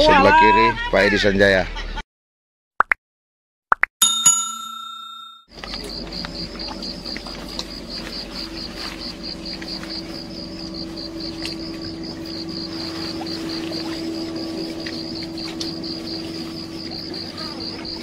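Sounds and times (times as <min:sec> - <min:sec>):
engine drone: 0:05.5 - 0:18.0.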